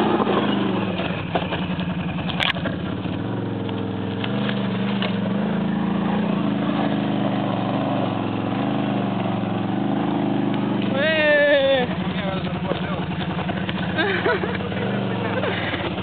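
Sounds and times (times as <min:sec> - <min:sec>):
atv engine running at low revs: 0:00.0 - 0:16.0.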